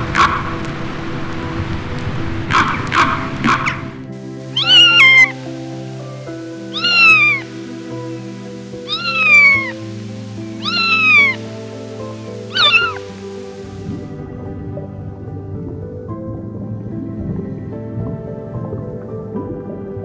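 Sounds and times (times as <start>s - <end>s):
background music with held notes: 0.0s - 20.0s
cat meowing: 4.6s - 5.3s, 6.7s - 7.4s, 8.9s - 9.7s, 10.6s - 11.4s, 12.5s - 13.1s.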